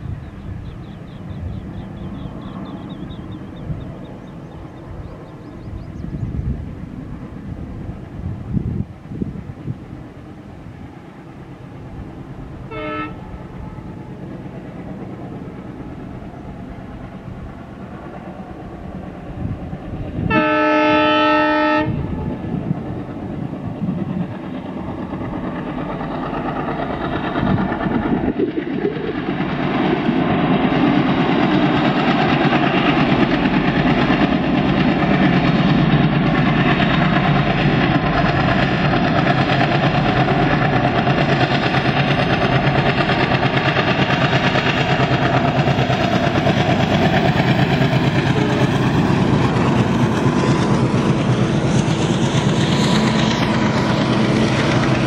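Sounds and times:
diesel locomotive engines: 0.0 - 55.0
locomotive horn: 12.7 - 13.4, 20.2 - 22.3.

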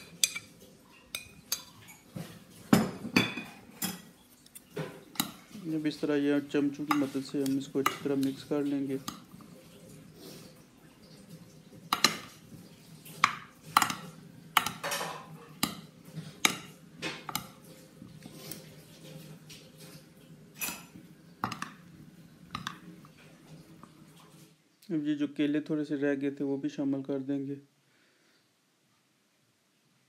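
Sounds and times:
spoons clinking on glass dish: 0.0 - 5.6, 11.9 - 12.4, 13.2 - 17.6.

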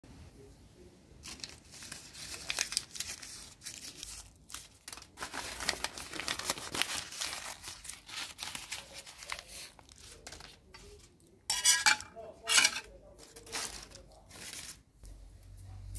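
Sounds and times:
paper and plastic bag crumpling: 1.2 - 11.1, 13.0 - 14.9.

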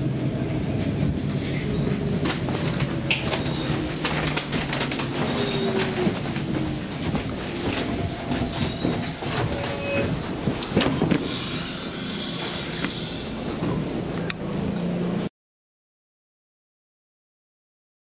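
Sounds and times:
train wheels squealing on rails: 0.0 - 2.1, 2.9 - 3.9, 5.1 - 10.2, 11.0 - 14.0.

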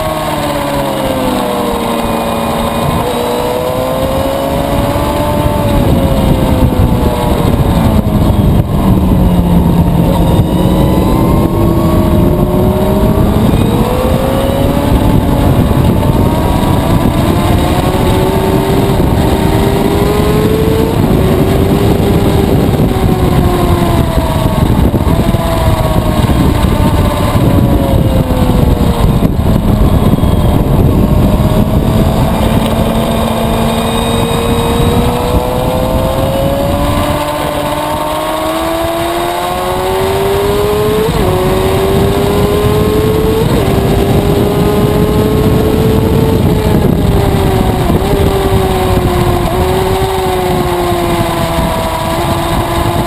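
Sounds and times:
motorcycle engine at high revs: 0.0 - 53.0
wind and road noise: 0.0 - 53.0.

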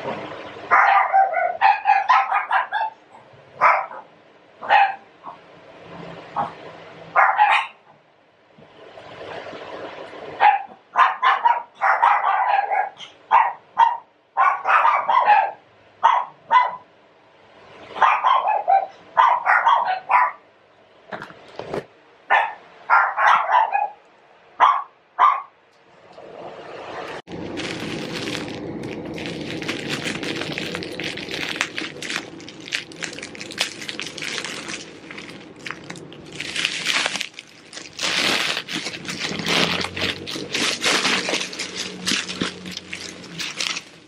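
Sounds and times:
dog barking: 0.7 - 3.0, 3.6 - 5.4, 6.4 - 7.8, 10.4 - 16.9, 18.0 - 20.5, 22.3 - 24.0, 24.6 - 25.6.

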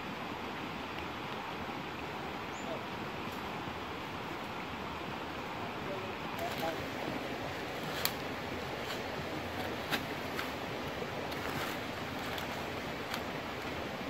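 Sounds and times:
stream rushing: 0.0 - 14.0
stick scraping into dry leaves: 7.6 - 13.3.

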